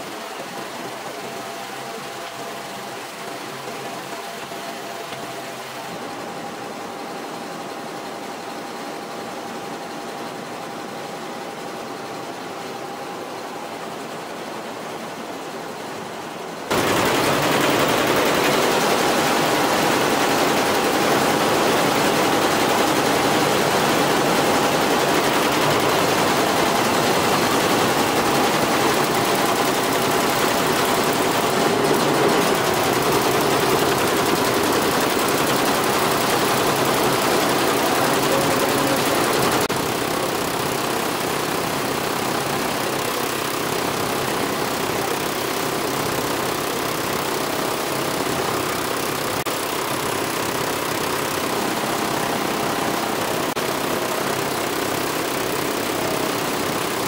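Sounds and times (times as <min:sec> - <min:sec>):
embroidery machine rapid clatter: 0:16.7 - 0:57.0.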